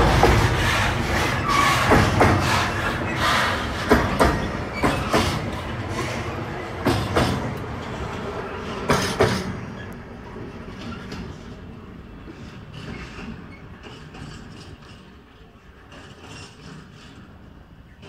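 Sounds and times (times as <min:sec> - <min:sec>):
train rolling rumble: 0:00.0 - 0:18.0
train wheels clicking over rail joints: 0:00.0 - 0:18.0.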